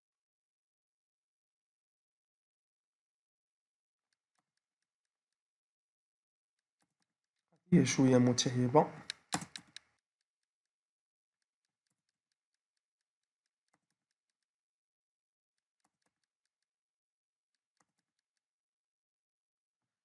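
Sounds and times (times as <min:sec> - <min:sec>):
computer keyboard keystrokes: 0:09.0 - 0:10.0.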